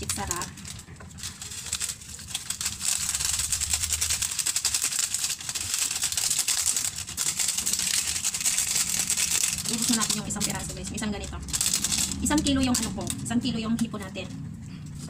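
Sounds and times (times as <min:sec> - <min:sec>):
seasoning granules pattering: 0:00.0 - 0:13.2
foil sachet crinkling: 0:00.0 - 0:13.6.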